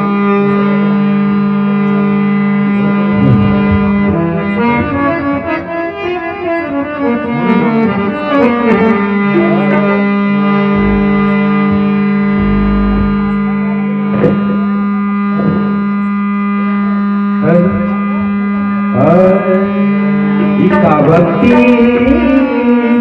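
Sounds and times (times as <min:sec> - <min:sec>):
harmonium melody over drone: 0:00.0 - 0:23.0.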